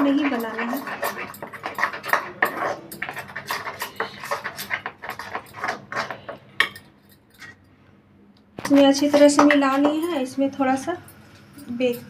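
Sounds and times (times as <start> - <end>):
bangles clicking against steel bowl: 0.0 - 7.6.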